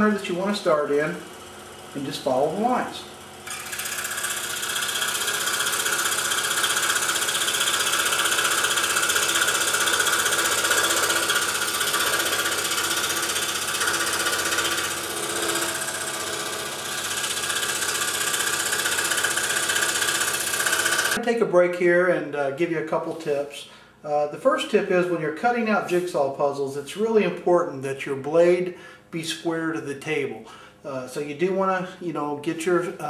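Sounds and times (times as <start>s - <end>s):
scroll saw cutting plywood: 0.5s - 21.2s.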